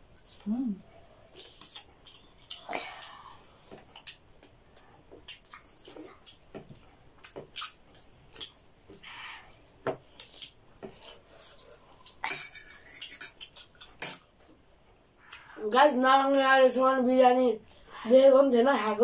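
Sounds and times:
wet chewing and lip-smacking: 0:01.3 - 0:09.4, 0:10.1 - 0:14.6.

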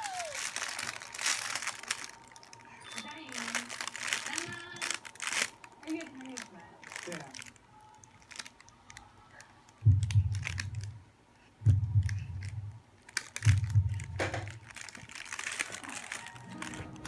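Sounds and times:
paper crinkling: 0:00.0 - 0:10.9, 0:12.2 - 0:17.0
dull low thumps: 0:09.8 - 0:11.0, 0:11.6 - 0:12.8, 0:13.4 - 0:14.6.

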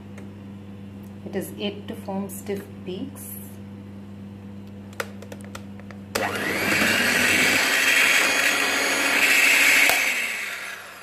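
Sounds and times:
electric hand mixer whipping cream: 0:06.2 - 0:11.0.

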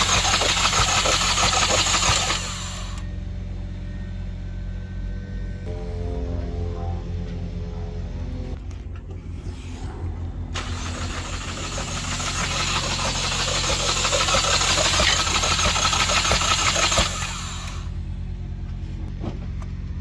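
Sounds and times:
car engine cranking on starter: 0:00.0 - 0:03.0, 0:10.6 - 0:17.9.

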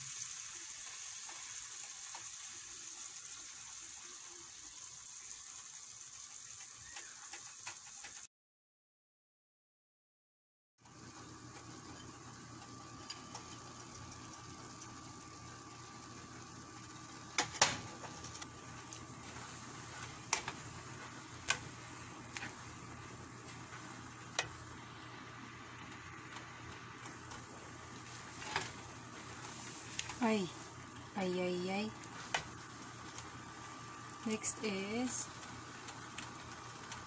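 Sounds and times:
faint steady hiss and hum: 0:11.1 - 0:37.0.

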